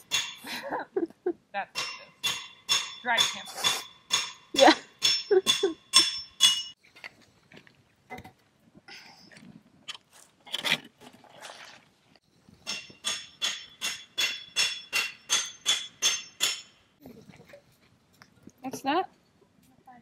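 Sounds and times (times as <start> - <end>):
hammer striking metal: 0.0 - 0.4, 1.8 - 6.8, 12.6 - 16.8
knocks and clinks: 1.7 - 6.8.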